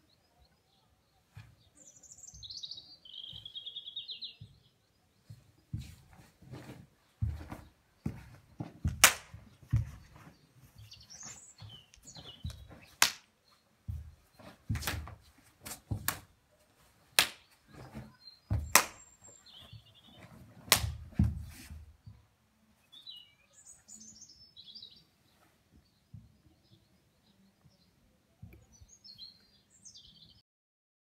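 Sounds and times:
small birds chirping: 0.0 - 30.4
sharp slaps and snaps: 8.9 - 9.4, 12.5 - 13.3, 14.8 - 15.1, 15.7 - 16.3, 17.2 - 17.6, 18.6 - 19.1, 20.7 - 21.0.

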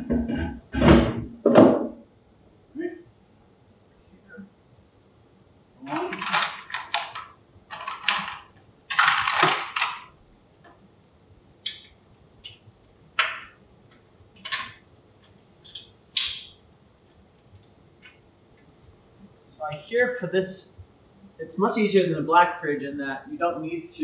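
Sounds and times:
jangling metal rattles: 5.8 - 10.2
metal clinking and scraping: 5.8 - 10.8.

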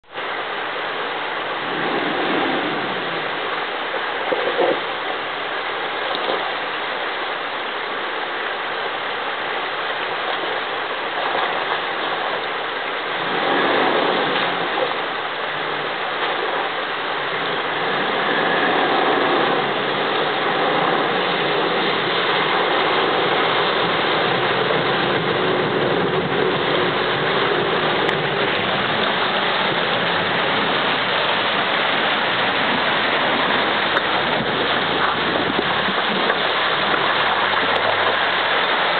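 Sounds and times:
bow wave splashing: 0.0 - 38.9
river water rushing: 0.0 - 38.9
vehicle engine running: 13.2 - 38.9.

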